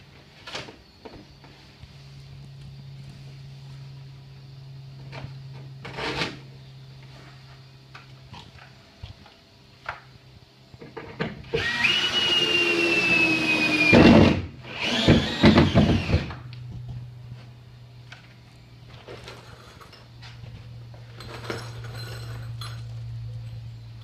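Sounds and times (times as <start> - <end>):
power tool whining: 11.5 - 16.4.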